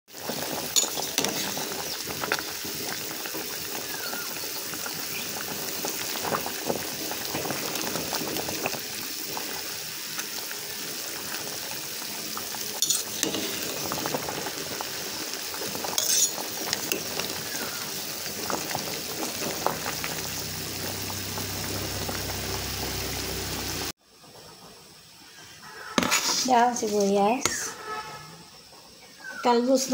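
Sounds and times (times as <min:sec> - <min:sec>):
soup bubbling at a boil: 0:00.1 - 0:24.0.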